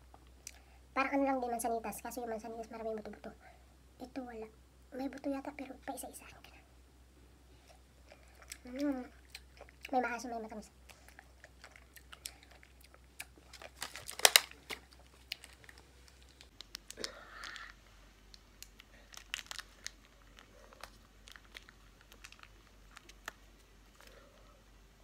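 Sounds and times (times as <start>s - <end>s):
plastic packaging crinkling: 11.7s - 24.2s
sachet tearing: 13.4s - 17.7s, 18.6s - 24.2s.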